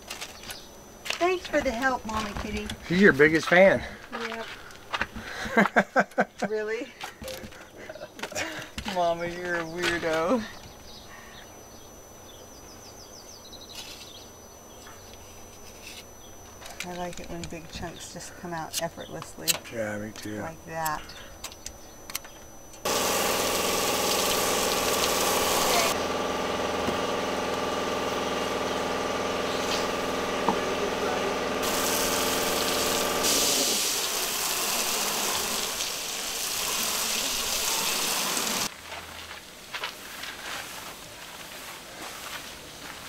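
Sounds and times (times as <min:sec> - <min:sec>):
motor and pump humming: 0:07.0 - 0:38.7
pressure washer water hissing: 0:22.8 - 0:38.7.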